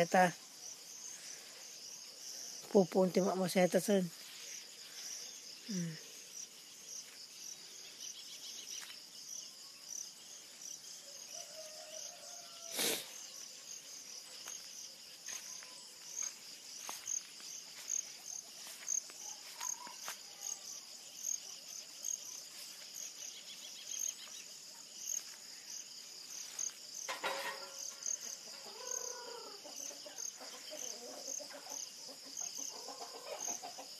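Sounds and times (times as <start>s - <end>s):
insects chirping: 0.0s - 33.9s
chickens clucking: 28.5s - 33.9s.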